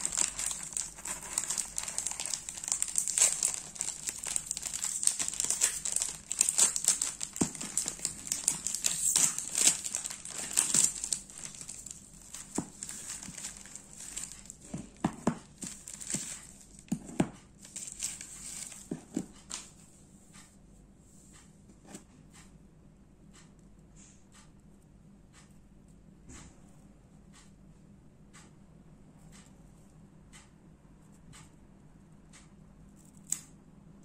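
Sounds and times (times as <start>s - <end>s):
plastic wrapper crinkling: 0.0s - 17.0s, 17.6s - 19.7s.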